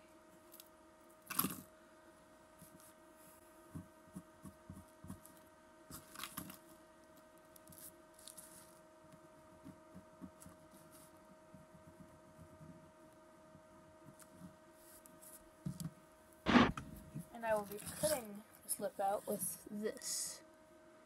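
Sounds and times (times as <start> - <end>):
electrical hum: 0.0 - 21.0
pencil tapping and scratching wood: 3.7 - 5.4, 9.4 - 12.9.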